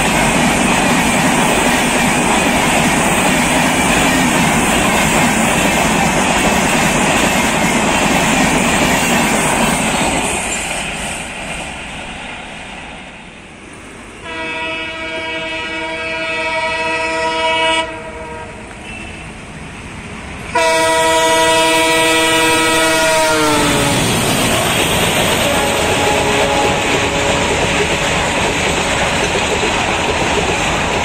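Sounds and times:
train coaches clattering: 0:00.0 - 0:15.4, 0:18.6 - 0:31.0
locomotive horn blasts: 0:14.2 - 0:19.2, 0:20.5 - 0:24.0, 0:24.8 - 0:28.4.

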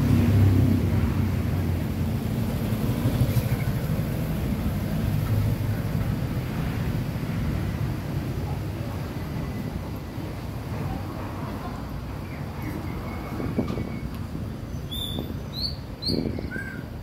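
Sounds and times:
motorcycle passing: 0:00.0 - 0:01.8.

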